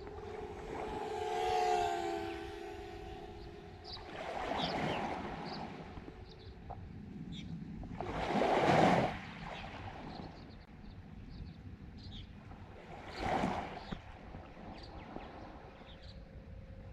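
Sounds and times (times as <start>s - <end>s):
lake waves washing onto shore: 4.0s - 6.1s, 7.9s - 10.2s.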